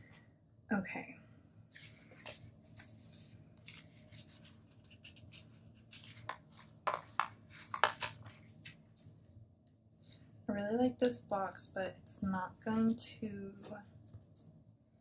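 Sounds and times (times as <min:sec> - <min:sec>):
paper sticker sheets rustling: 0:01.7 - 0:09.2.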